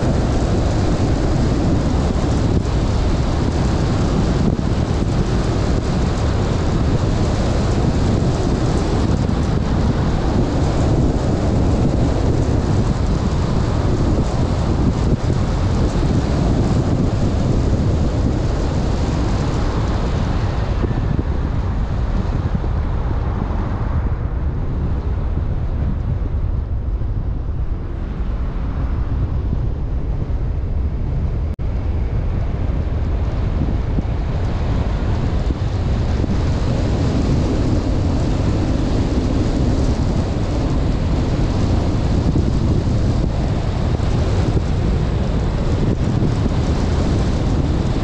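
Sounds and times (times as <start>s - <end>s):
car road noise: 0.0s - 48.0s
tyre and wind rush: 0.0s - 48.0s
wind buffeting microphone: 0.0s - 48.0s.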